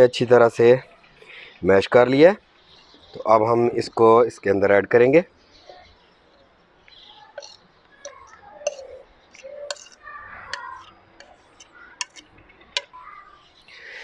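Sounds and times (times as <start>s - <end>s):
fork scraping and tapping plate: 6.9s - 13.8s.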